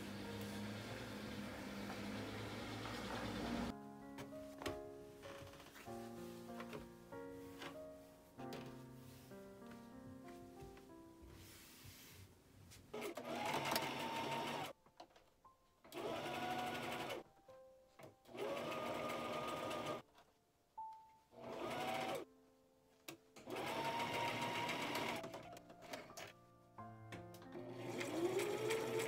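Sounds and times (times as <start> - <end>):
sewing machine stitching: 13.0 - 14.7, 15.9 - 17.2, 18.3 - 20.0, 21.4 - 22.2, 23.4 - 25.4, 27.6 - 29.0.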